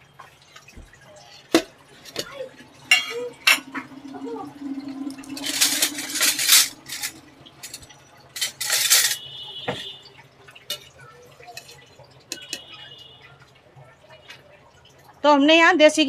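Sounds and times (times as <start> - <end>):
metal utensils clattering: 1.4 - 12.7.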